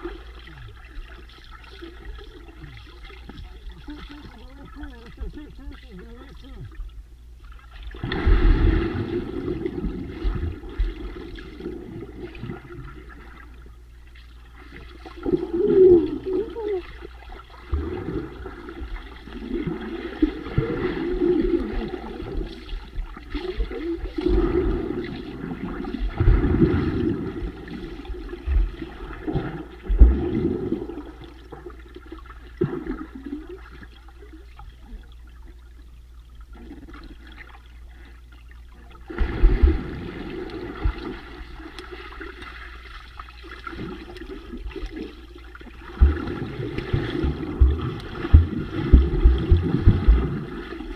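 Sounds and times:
muffled water churning underwater: 0.0 - 50.9
swimmer splashing: 14.3 - 31.8, 39.0 - 50.9
low thumps: 47.0 - 50.4.

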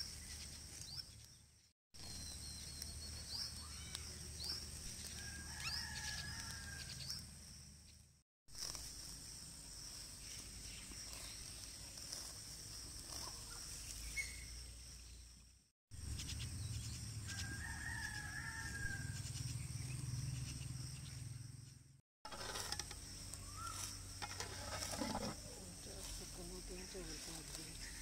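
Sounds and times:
rooster crowing: 5.1 - 7.2, 17.3 - 19.2.

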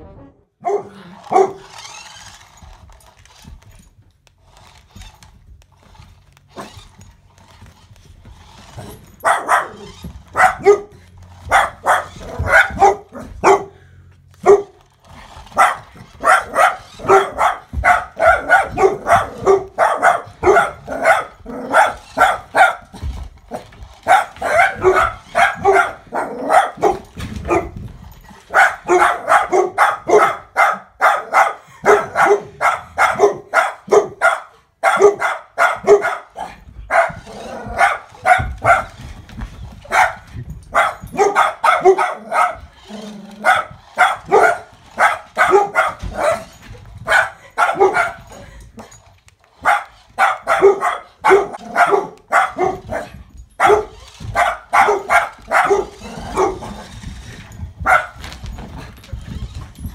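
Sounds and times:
dog barking rapidly: 0.6 - 2.3, 9.2 - 13.8, 14.4 - 14.8, 15.5 - 23.0, 24.0 - 27.8, 28.5 - 39.0, 39.8 - 48.3, 49.6 - 57.0, 57.8 - 58.2.

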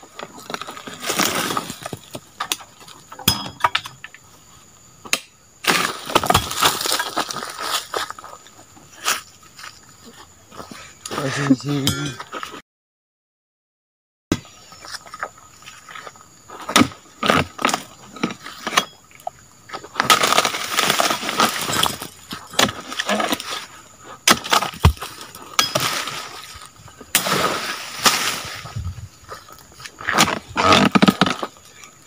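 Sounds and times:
palm fronds crashing: 20.0 - 22.1, 24.3 - 28.8
chisel chopping into palm: 24.2 - 26.1.

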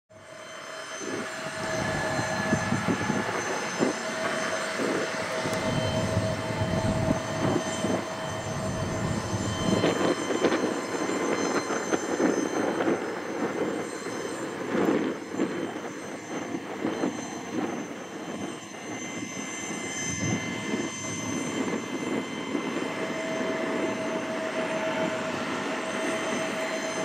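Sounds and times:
jet engine whine and rumble: 0.1 - 27.0.

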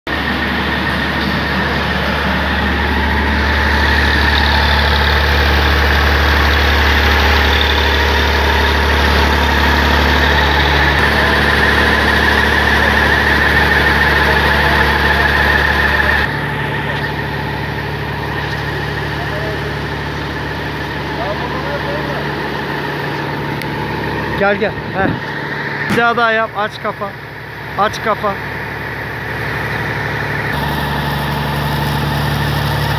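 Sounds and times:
tractor engine running: 0.1 - 32.9.

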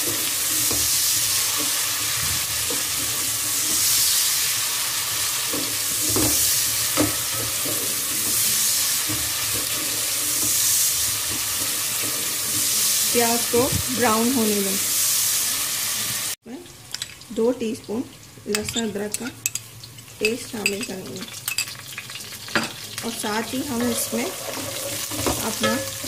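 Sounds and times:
onions sizzling in hot oil: 0.0 - 26.0
spoon scraping and knocking pot: 23.7 - 26.0.

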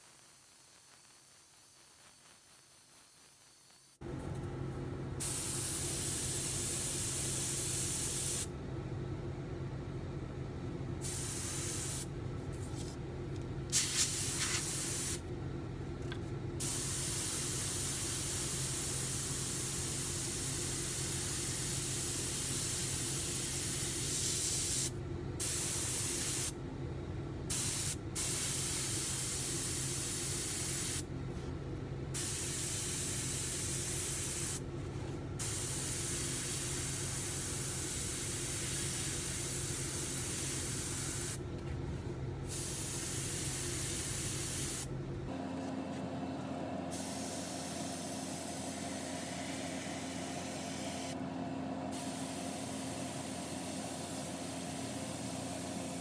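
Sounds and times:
low steady hum: 4.0 - 22.1, 26.6 - 55.3
airbrush spraying hiss: 5.2 - 8.5, 11.0 - 12.1, 13.7 - 15.2, 16.6 - 26.6, 27.5 - 31.1, 32.2 - 34.6, 35.4 - 41.4, 42.5 - 44.9, 46.9 - 51.2, 51.9 - 56.0.

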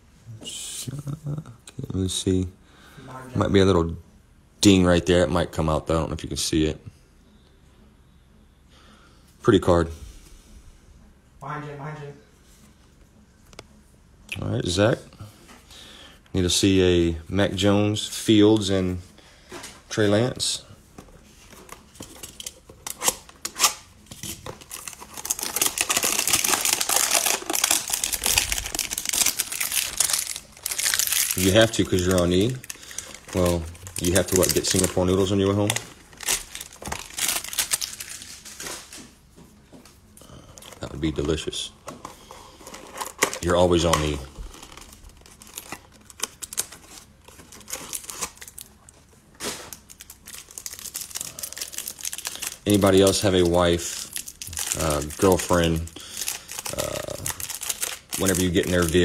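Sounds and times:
cellophane rustle: 21.8 - 39.0, 42.1 - 48.8, 49.4 - 59.0
packaging tearing and crinkling: 22.2 - 39.0, 42.7 - 48.8, 49.4 - 59.0.

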